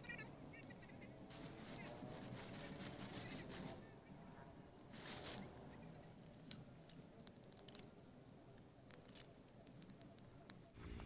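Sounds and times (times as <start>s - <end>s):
campfire crackling and popping: 4.9s - 10.8s.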